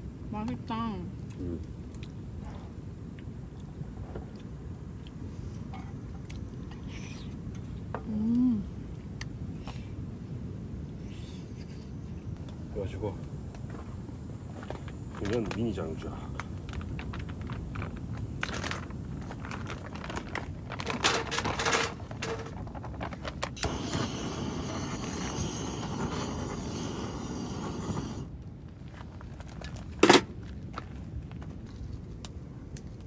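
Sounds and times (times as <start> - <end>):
plastic bag crinkling: 16.3 - 23.7
firewood clattering into steel can: 19.6 - 23.6
gas torch hissing: 23.6 - 28.4.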